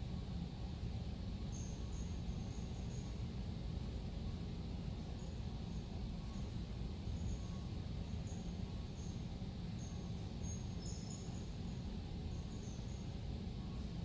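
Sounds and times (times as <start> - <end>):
low room rumble: 0.0 - 14.0
faint high-pitched chirps: 1.5 - 3.2, 6.2 - 13.9.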